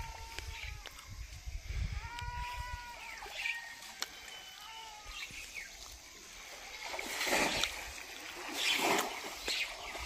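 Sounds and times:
water splashing and sloshing: 0:03.2 - 0:10.0.

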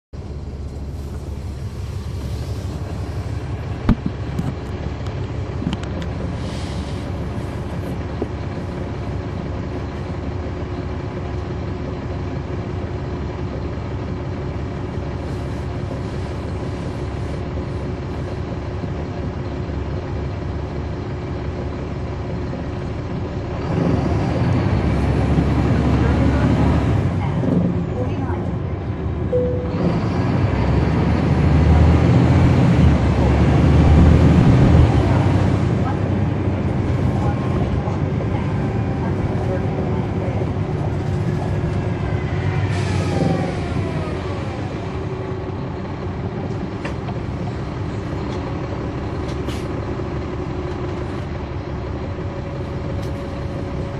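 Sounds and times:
bus diesel engine running: 0:00.0 - 0:53.9.

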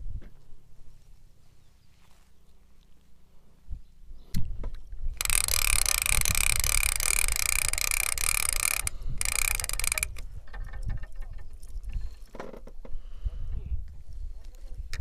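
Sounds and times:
fishing reel gears whirring: 0:05.1 - 0:11.1.

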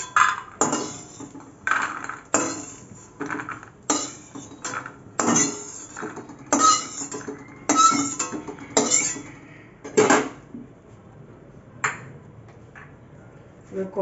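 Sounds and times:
metal spatula scraping in pan: 0:00.0 - 0:09.4.

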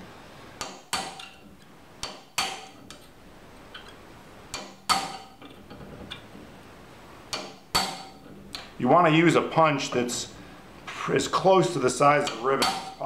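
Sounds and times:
hammer striking metal punch: 0:00.6 - 0:03.0, 0:04.5 - 0:05.4, 0:07.3 - 0:08.7, 0:12.2 - 0:13.0.

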